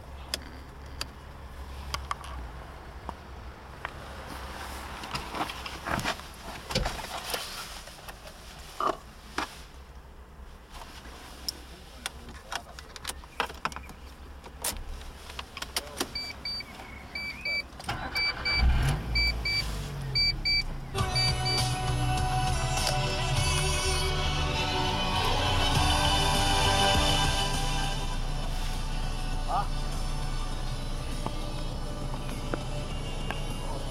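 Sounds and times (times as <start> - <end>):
car engine starting and idling: 0.0 - 33.9
electronic warning chime beeping: 18.2 - 19.6, 20.2 - 21.6
music: 21.0 - 33.9.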